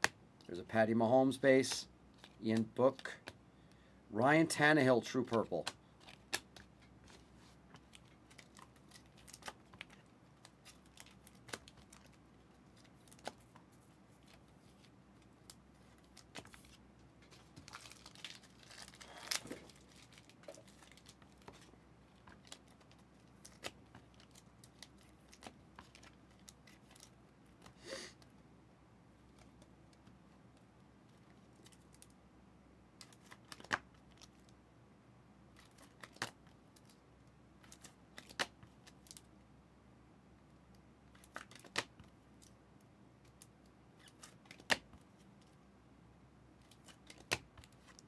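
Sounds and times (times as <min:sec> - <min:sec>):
trading cards and wrappers crinkling: 0:01.3 - 0:03.4, 0:04.2 - 0:27.8, 0:35.5 - 0:37.0, 0:37.6 - 0:39.3, 0:41.1 - 0:42.5, 0:46.6 - 0:48.0.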